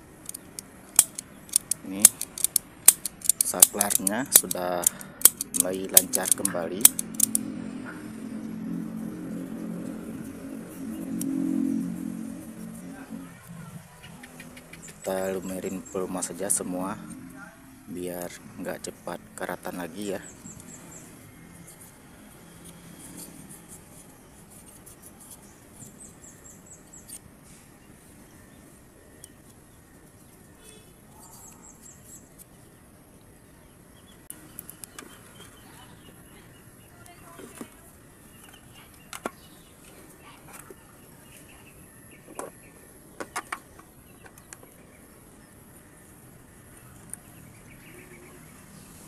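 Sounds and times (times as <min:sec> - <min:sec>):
metal switch clicking and rattling: 0:00.3 - 0:07.4
birds chirping faintly: 0:09.6 - 0:49.0.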